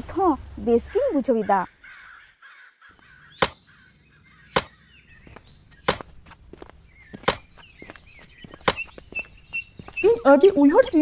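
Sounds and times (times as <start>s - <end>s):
axe chopping log: 3.4s - 3.6s, 4.5s - 4.8s, 5.8s - 6.1s, 7.2s - 7.5s.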